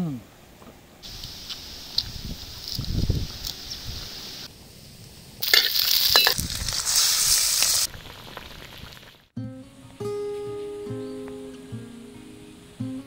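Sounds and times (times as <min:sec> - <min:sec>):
meat sizzling in hot fat: 0:01.0 - 0:09.3
acoustic guitar music: 0:09.4 - 0:13.0.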